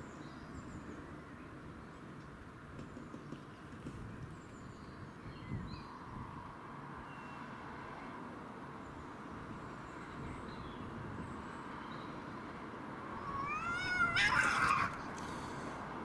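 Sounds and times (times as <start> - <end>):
outdoor background noise: 0.0 - 16.0
cat yowling: 13.2 - 15.0.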